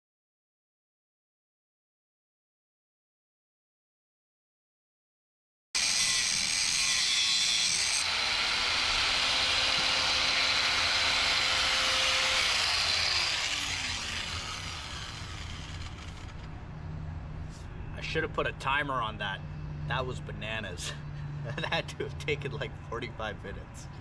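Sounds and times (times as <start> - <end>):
angle grinder cutting steel: 5.8 - 16.5.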